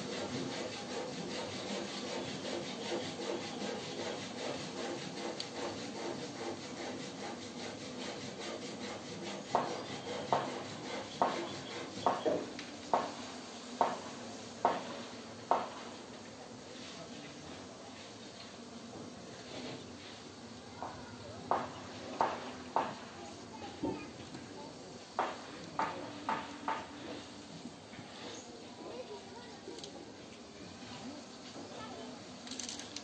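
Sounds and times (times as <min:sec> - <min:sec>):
steady scraping: 0:00.0 - 0:16.0, 0:25.2 - 0:29.0.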